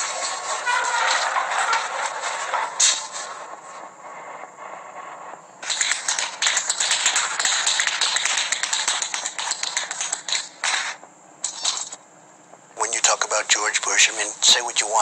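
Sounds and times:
tap dance steps on hard floor: 5.6 - 11.9.

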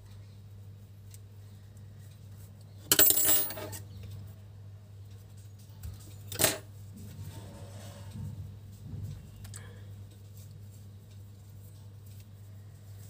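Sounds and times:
metal tools rattling: 2.9 - 3.8.

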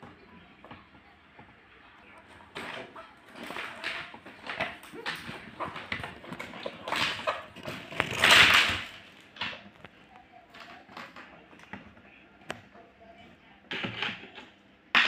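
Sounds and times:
loud rustling: 2.2 - 9.8.

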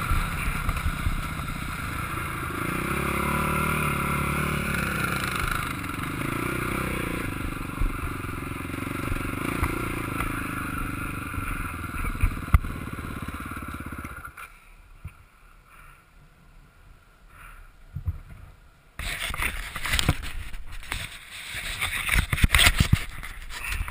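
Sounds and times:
quad engine running at low revs: 0.0 - 15.2, 19.0 - 23.9
knocks and clicks at microphone: 21.7 - 23.9.

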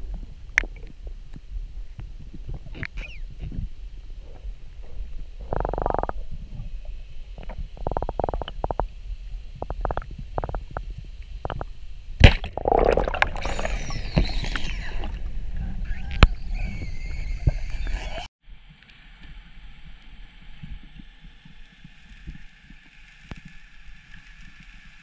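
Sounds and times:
speargun crack underwater: 11.5 - 13.9.

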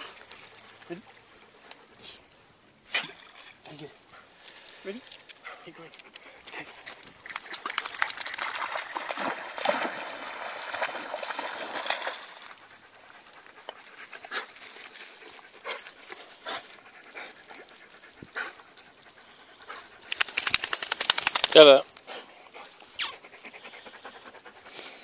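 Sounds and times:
paws on gravel: 3.4 - 9.0, 11.4 - 24.6
dog panting: 3.7 - 7.6, 12.4 - 25.0.

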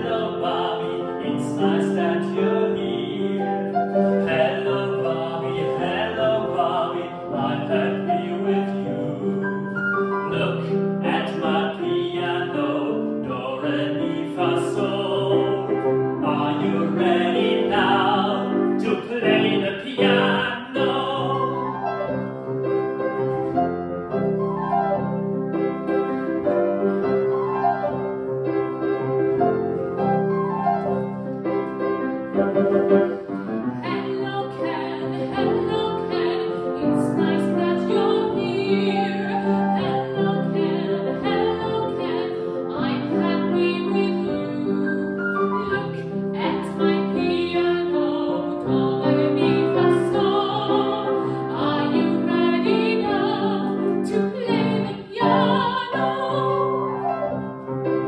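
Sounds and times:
man singing operatically: 0.0 - 9.6, 10.2 - 21.7
grand piano: 0.0 - 58.0
woman singing operatically: 33.8 - 45.2, 46.4 - 56.8.

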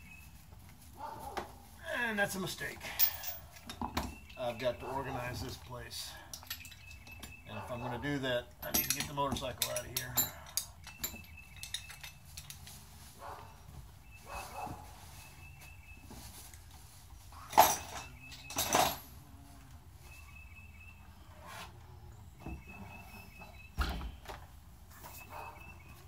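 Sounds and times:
dog barking: 1.0 - 1.5, 14.2 - 14.9
faint bird chirps: 22.1 - 24.4, 25.0 - 26.0.

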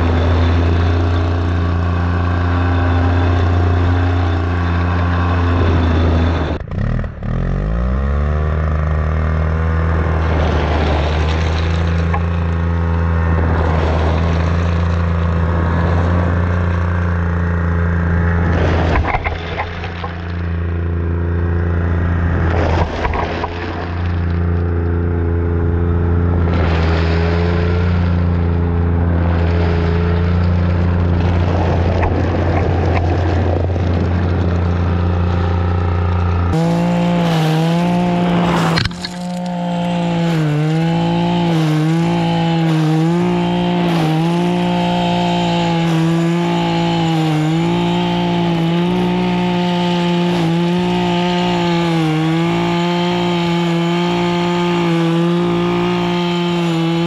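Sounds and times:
two-stroke power broom engine: 0.0 - 57.0
paddles hitting gravel: 10.3 - 12.6, 22.5 - 24.8, 37.9 - 41.9.

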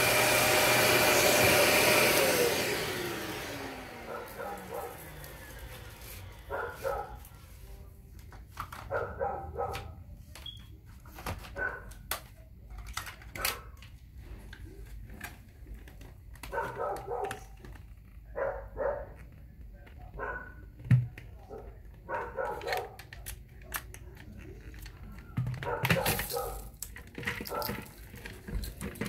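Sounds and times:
vacuum motor winding down: 0.0 - 6.5
dog barking: 4.1 - 5.2, 6.4 - 7.4, 8.9 - 10.0, 11.5 - 11.9, 13.4 - 13.8, 16.5 - 17.6, 18.3 - 19.2, 20.1 - 20.6, 21.5 - 23.0, 25.6 - 26.7, 27.4 - 27.9.

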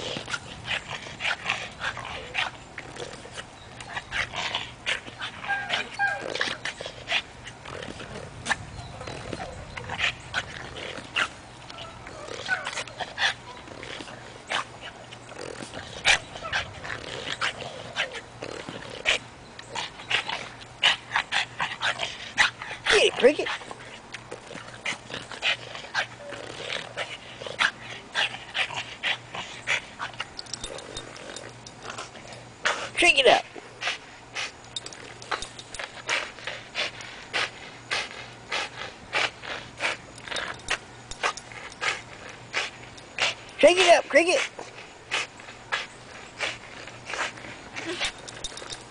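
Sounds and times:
dog whining and growling: 0.0 - 14.2, 14.8 - 20.6, 24.4 - 28.3, 46.2 - 48.9.

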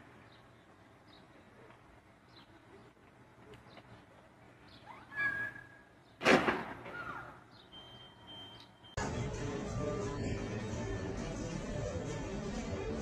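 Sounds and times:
faint birds chirping: 0.0 - 6.2, 6.9 - 9.0
loud crash: 6.2 - 7.0.

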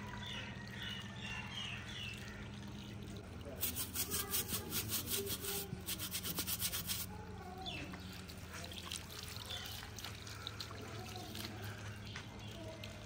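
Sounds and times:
faint water: 0.0 - 13.0
hand scrubbing in water: 3.6 - 7.1.

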